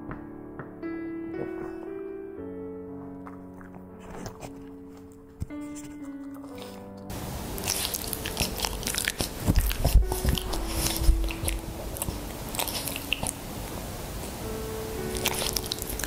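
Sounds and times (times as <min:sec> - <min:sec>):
dog licking and smacking mouth: 0:07.6 - 0:13.4.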